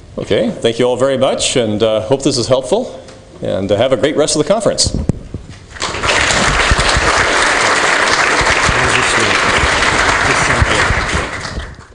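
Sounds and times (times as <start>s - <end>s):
audience applauding: 5.8s - 11.9s.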